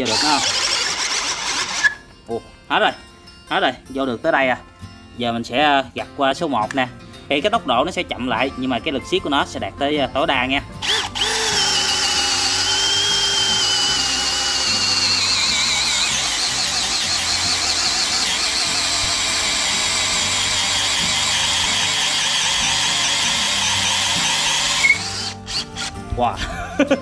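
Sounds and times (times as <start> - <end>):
drill bit cutting wood: 0.0 - 2.0, 10.8 - 26.0
drill motor whining under load: 0.0 - 2.0, 10.8 - 26.0.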